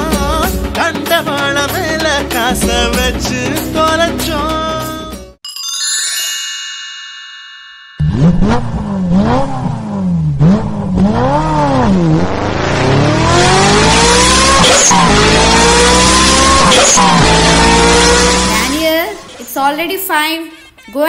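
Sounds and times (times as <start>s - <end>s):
ringing chime: 5.4s - 9.2s
video game engine revving: 8.0s - 19.3s.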